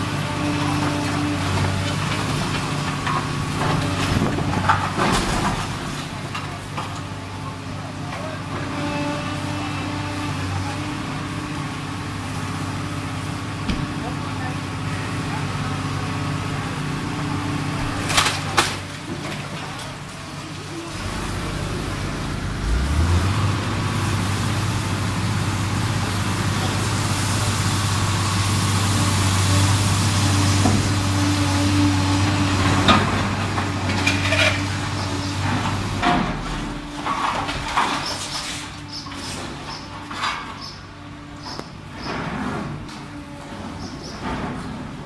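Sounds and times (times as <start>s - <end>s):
excavator diesel engine: 0.0s - 45.0s
clattering rubble: 0.1s - 9.6s, 17.8s - 21.1s, 30.3s - 45.0s
timber and masonry cracking: 0.4s - 7.2s, 17.9s - 20.4s, 32.2s - 40.6s.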